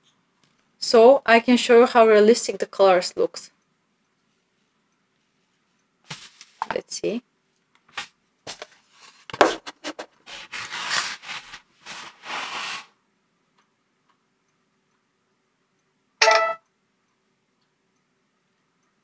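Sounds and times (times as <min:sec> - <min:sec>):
short sharp tone: 0:16.2 - 0:16.6.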